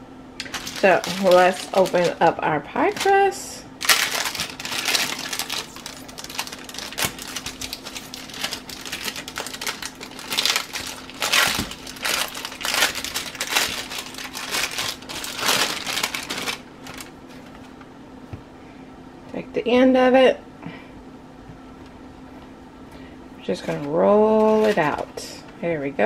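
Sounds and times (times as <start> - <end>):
plastic wrapping crinkling: 0.4 - 17.8, 23.6 - 25.2.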